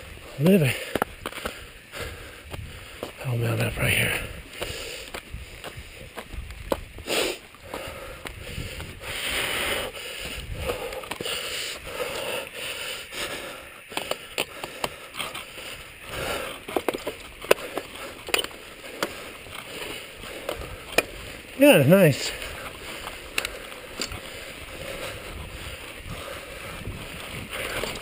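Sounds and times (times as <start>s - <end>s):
bike clicks and rattles: 0.0s - 3.2s, 4.2s - 28.0s
bike tyres crunching over dirt: 0.0s - 28.0s
short hissing rushes: 7.0s - 7.4s.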